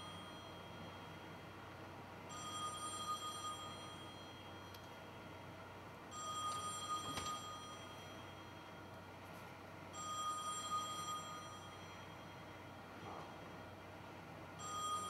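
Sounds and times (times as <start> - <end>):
high electronic ringing tone: 0.0 - 1.4, 2.3 - 4.7, 6.1 - 8.9, 9.9 - 12.6, 14.6 - 15.0.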